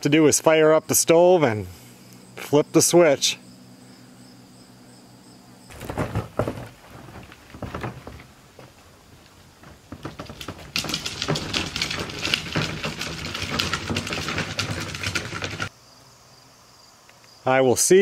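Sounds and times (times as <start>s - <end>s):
plastic bin rattling on grass: 5.7s - 15.7s.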